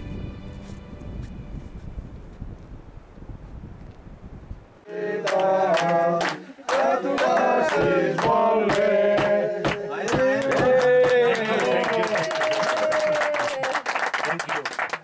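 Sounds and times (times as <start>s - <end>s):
group singing a celebration song: 4.8s - 11.5s
hand-clapping in time: 5.2s - 15.0s.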